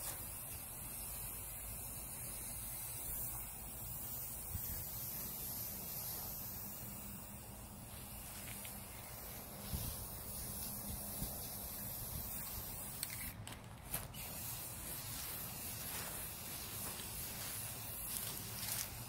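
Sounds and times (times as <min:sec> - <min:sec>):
spray paint can hissing: 0:00.0 - 0:19.0.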